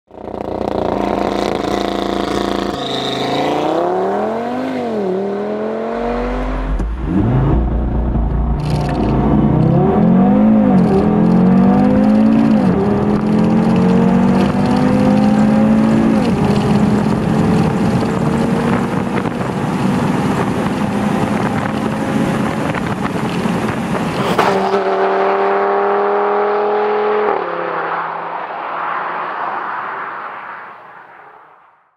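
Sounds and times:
car engine accelerating: 0.2 - 28.6
sharp click: 8.6 - 9.7.

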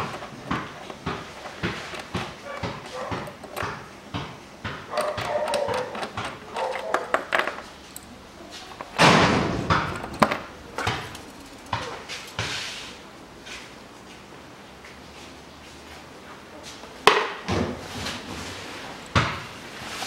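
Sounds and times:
hand tool clicks and knocks: 4.9 - 8.1
loud scraping rustle: 19.7 - 20.0.

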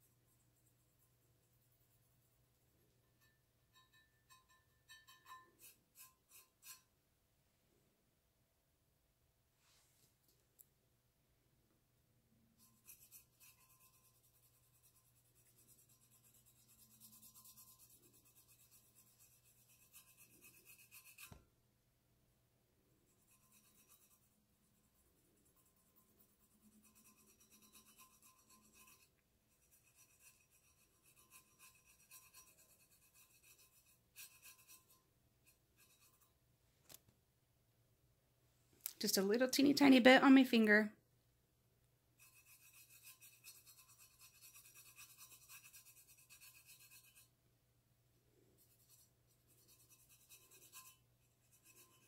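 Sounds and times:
fingertips rubbing paint on metal: 3.2 - 6.9, 12.6 - 21.4, 23.1 - 36.4, 42.2 - 47.3, 48.6 - 52.0.

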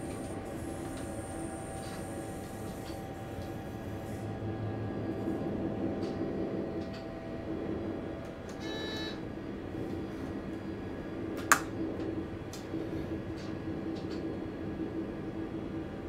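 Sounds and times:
train cab hum and rumble: 0.0 - 16.0.

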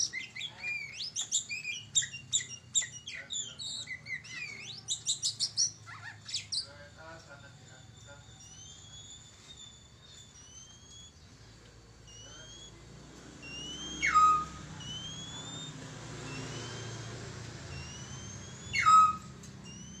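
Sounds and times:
bird downward-sweeping calls: 0.0 - 6.9, 7.8 - 11.4, 12.0 - 20.0
bird whistling: 0.0 - 11.3, 12.0 - 12.8, 13.4 - 20.0.

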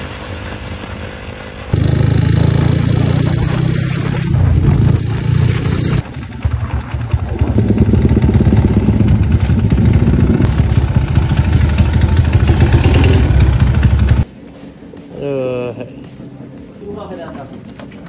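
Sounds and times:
small motorcycle engine idling: 0.0 - 14.3.

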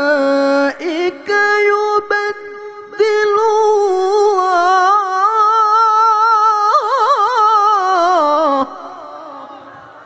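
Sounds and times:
man reciting melodically: 0.0 - 10.0.

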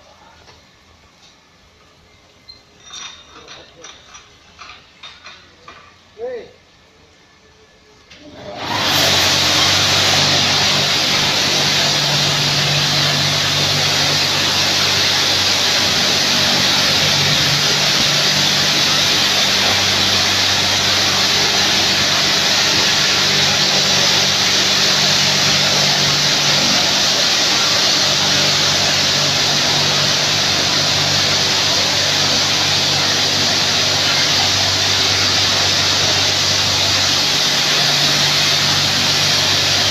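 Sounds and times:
pump motor hum: 8.1 - 39.9
high-pressure water jets hissing: 8.6 - 39.9.

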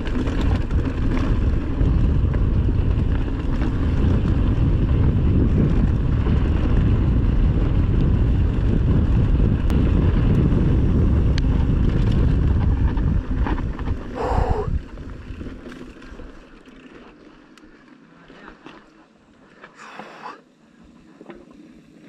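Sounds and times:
wind buffeting microphone: 0.0 - 16.3
vehicle rumble: 0.0 - 16.7.

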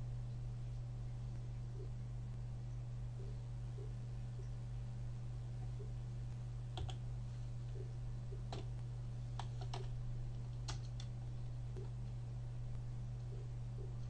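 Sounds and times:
steady low hum: 0.0 - 14.0
keyboard keystrokes: 6.8 - 7.0, 9.4 - 10.0, 10.6 - 11.1.

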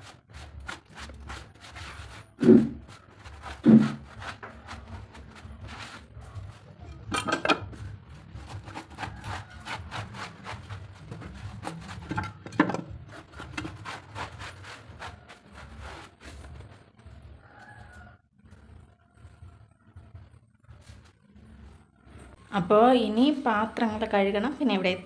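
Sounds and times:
cloth scraping over cement: 0.0 - 6.9, 7.8 - 12.4, 13.0 - 17.2.

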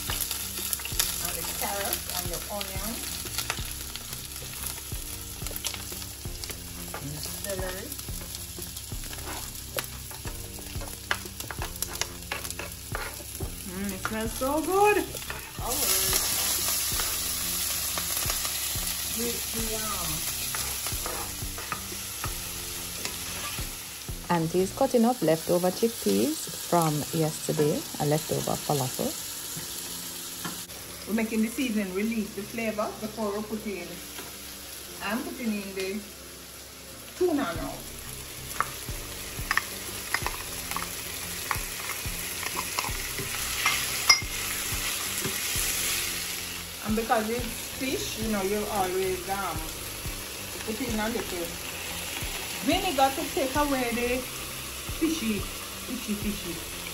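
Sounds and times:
vegetables sizzling in oil: 0.0 - 56.9
spatula scraping the pan: 11.5 - 13.4, 20.4 - 22.3.

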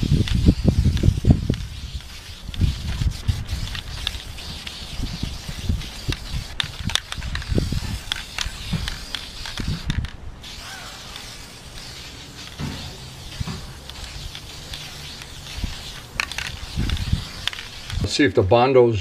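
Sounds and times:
wind rumbling on microphone: 0.0 - 10.4, 15.5 - 18.1
aerosol spray can hissing: 0.0 - 18.1.

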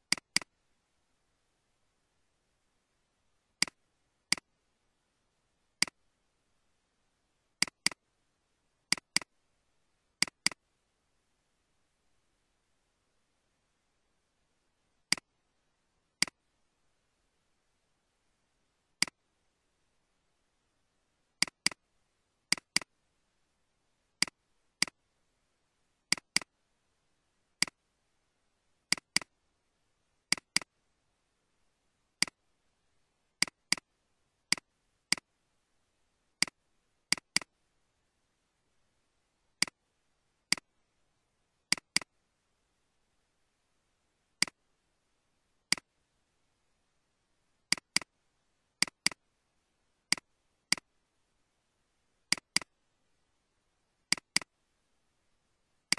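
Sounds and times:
computer mouse clicks: 0.0 - 0.5, 3.6 - 4.5, 7.6 - 8.0, 8.9 - 9.3, 10.2 - 10.6, 15.1 - 15.3, 21.4 - 21.8, 22.5 - 22.9, 26.1 - 26.5, 28.9 - 29.3, 30.3 - 30.7, 33.4 - 33.9, 34.5 - 35.3, 36.4 - 37.5, 40.5 - 40.7, 41.7 - 42.1, 45.7 - 45.9, 47.7 - 48.1, 48.8 - 49.2, 50.1 - 50.9, 52.3 - 52.7, 54.1 - 54.5.

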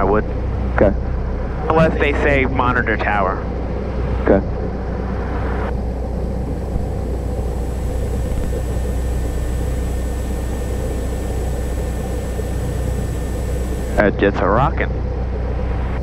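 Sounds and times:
aircraft engine droning in cockpit: 4.8 - 14.2.

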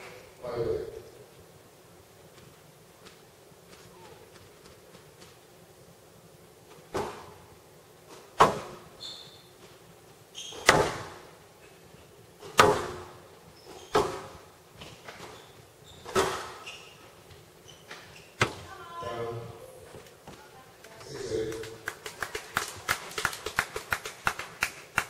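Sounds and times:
squash ball cracking off walls: 8.3 - 8.9, 10.6 - 11.3, 12.4 - 13.2, 13.9 - 14.5, 16.1 - 16.6, 18.4 - 18.7.

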